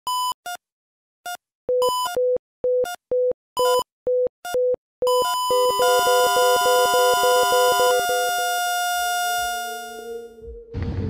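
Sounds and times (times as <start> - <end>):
synthesizer beeps: 5.1 - 8.5
synth music: 5.5 - 11.0.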